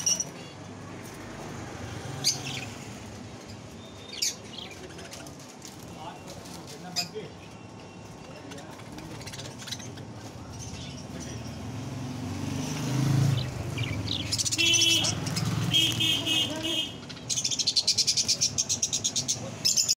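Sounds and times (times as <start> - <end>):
budgerigars chirping: 2.1 - 5.2, 13.2 - 20.0.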